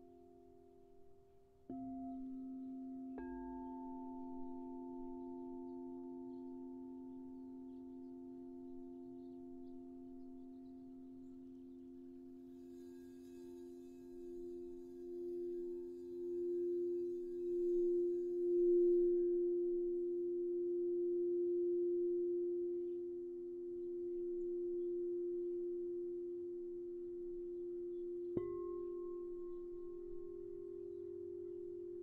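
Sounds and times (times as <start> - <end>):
singing bowls low tones: 0.0 - 32.0
bowl strike ringing: 10.6 - 20.4, 21.1 - 32.0.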